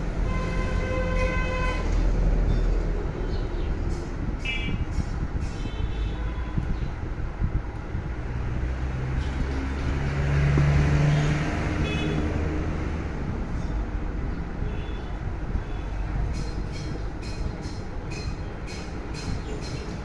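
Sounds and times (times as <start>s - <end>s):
traffic rumble: 0.0s - 20.0s
vehicle driving past: 8.3s - 14.4s.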